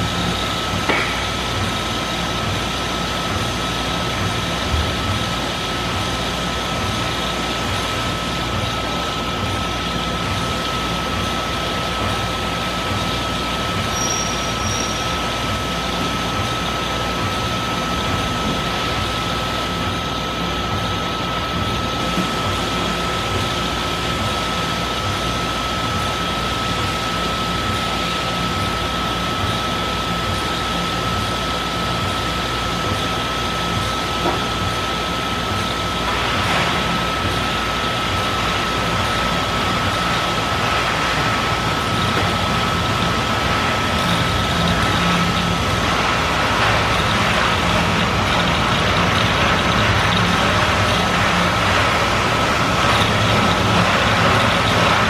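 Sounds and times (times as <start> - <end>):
constant high whine: 0.0 - 55.0
machine hiss and hum: 0.0 - 55.0.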